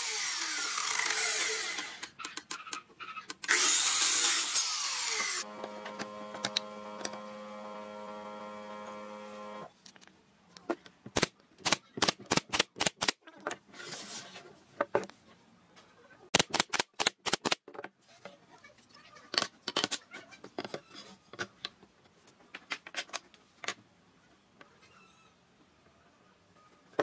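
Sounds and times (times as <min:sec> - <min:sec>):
nail gun firing: 0:11.1 - 0:13.2, 0:16.4 - 0:17.6.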